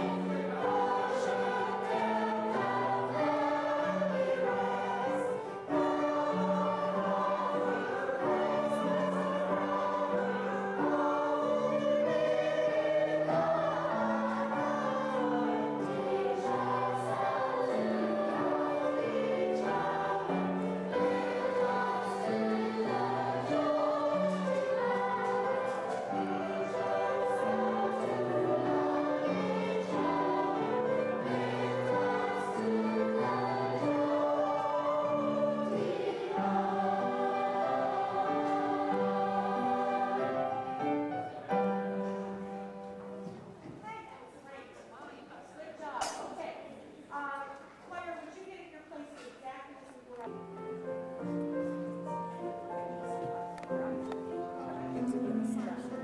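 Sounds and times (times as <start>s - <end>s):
mixed choir singing: 0.0s - 43.5s, 50.5s - 56.0s.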